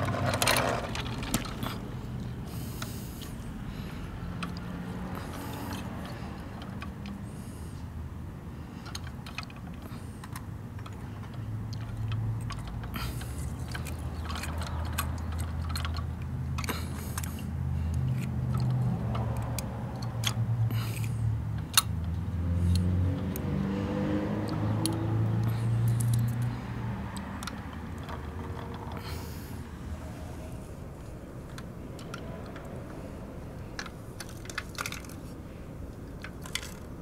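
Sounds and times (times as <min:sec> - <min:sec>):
low engine-like drone: 0:00.0 - 0:37.0
plastic toy parts clicking: 0:08.8 - 0:23.4, 0:24.8 - 0:26.5, 0:27.2 - 0:29.0, 0:31.4 - 0:32.9, 0:33.8 - 0:35.3, 0:35.9 - 0:37.0.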